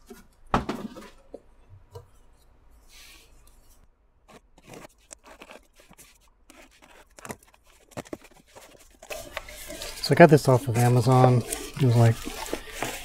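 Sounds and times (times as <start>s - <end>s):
knife slitting packing tape: 4.3s - 9.8s
cardboard flaps scraping and tapping: 4.3s - 13.0s.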